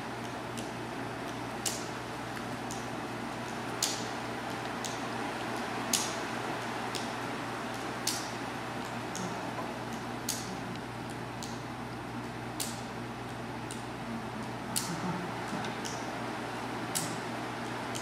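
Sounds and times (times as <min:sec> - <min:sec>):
low hum of room noise: 0:00.0 - 0:18.0
sharp ticks: 0:16.9 - 0:17.2.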